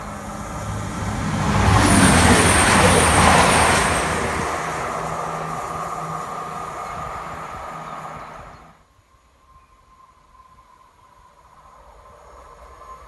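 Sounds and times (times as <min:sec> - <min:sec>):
train wheels rushing on rail: 0:00.0 - 0:08.8
diesel train engine drone: 0:00.0 - 0:09.0.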